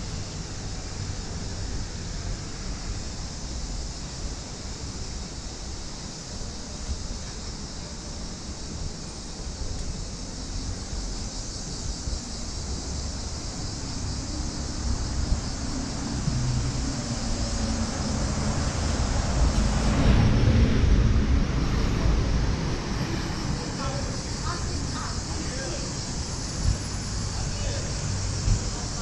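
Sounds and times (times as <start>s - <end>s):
high continuous hiss: 0.0s - 29.0s
street rumble: 0.0s - 29.0s
vehicle engine passing: 14.2s - 29.0s.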